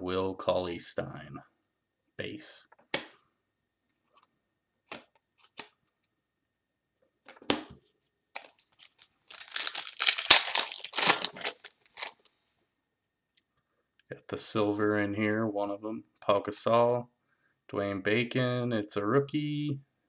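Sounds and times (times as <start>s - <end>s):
foil pack tearing and crinkling: 8.4s - 12.3s.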